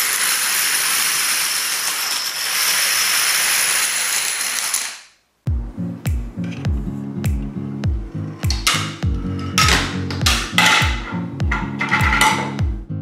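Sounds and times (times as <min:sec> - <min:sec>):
dominoes toppling: 0:00.0 - 0:05.2.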